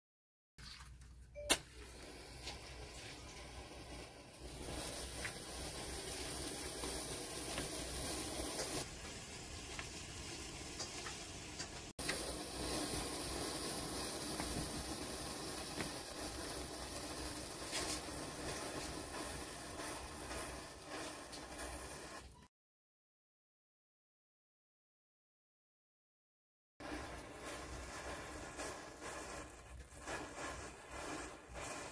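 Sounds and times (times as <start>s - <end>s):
sparkler fizzing: 1.4s - 22.5s, 26.8s - 31.9s
faint crackles: 1.8s - 22.4s.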